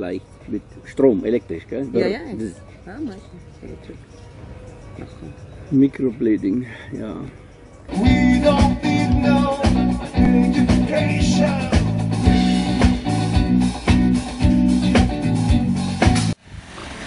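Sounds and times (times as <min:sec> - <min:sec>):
live band playing: 0:07.9 - 0:16.4
prominent bass line: 0:07.9 - 0:16.4.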